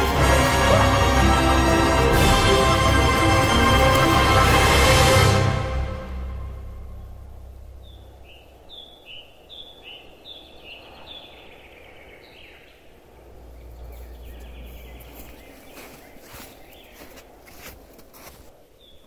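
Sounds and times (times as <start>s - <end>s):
low rumble: 0.0s - 9.9s, 12.9s - 16.5s
faint outdoor background noise: 0.0s - 19.0s
bird calling: 7.0s - 17.7s.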